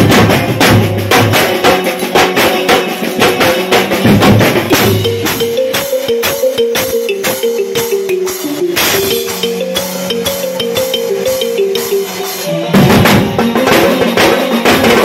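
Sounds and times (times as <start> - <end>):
fast driving drumming: 0.0 - 15.0
melody line: 4.7 - 14.2.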